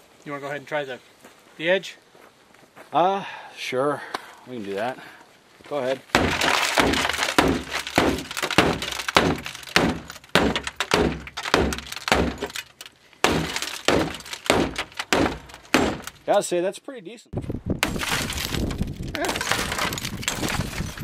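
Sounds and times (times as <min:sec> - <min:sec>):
glass cracking and breaking: 0:06.1 - 0:16.3, 0:17.8 - 0:21.0
tomahawk striking car window: 0:06.1 - 0:16.3.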